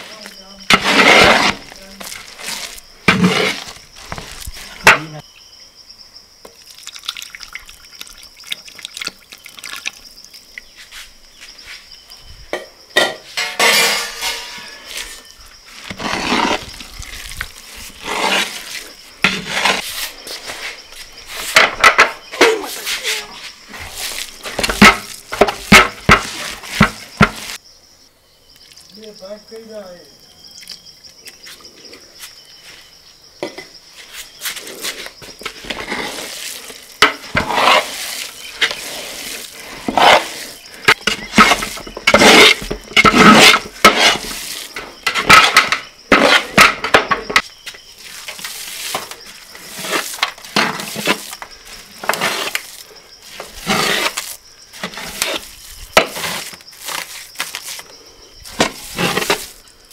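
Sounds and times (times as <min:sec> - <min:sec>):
metal utensils scraping steel pans: 0:13.0 - 0:15.2.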